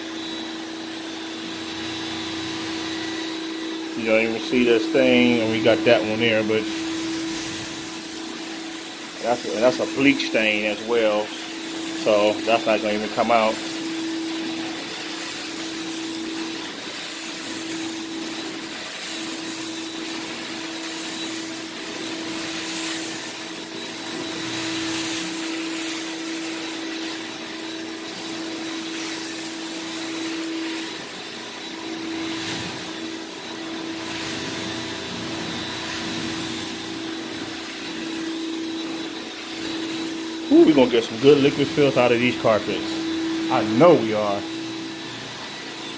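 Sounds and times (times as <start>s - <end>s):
extraction wand vacuum hissing: 0.0s - 45.9s
steady machine hum: 1.8s - 16.4s.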